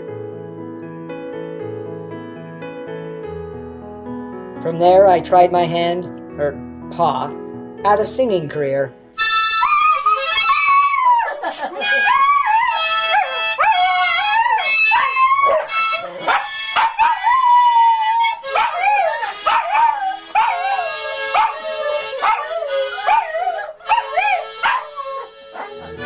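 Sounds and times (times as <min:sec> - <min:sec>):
harmonica: 0:09.2 - 0:26.0
dog howling: 0:09.5 - 0:26.0.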